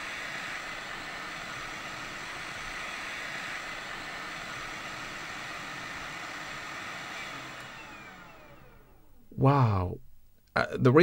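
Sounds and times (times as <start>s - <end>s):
hot air fan blowing: 0.0s - 10.2s.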